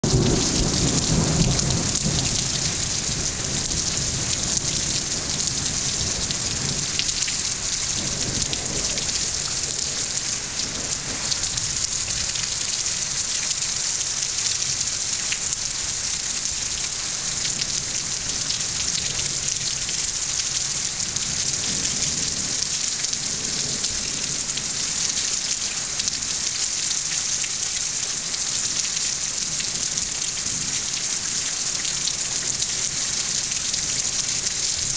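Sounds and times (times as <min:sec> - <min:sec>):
thunder rolling: 0:00.0 - 0:07.0
heavy rain pouring: 0:00.0 - 0:34.9.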